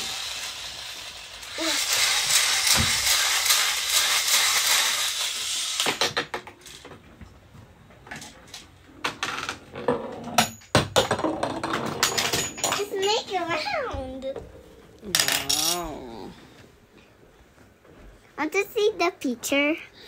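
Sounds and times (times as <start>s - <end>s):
spinning top whirring and rattling: 0.0s - 6.9s.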